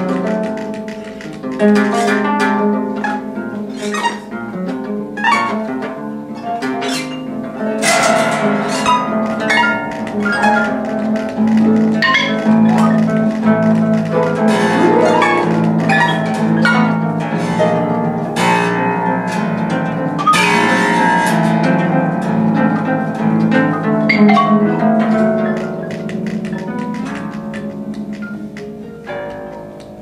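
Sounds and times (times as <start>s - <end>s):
harps plucked: 0.0s - 30.0s
mallet percussion on wooden bars: 6.8s - 18.8s.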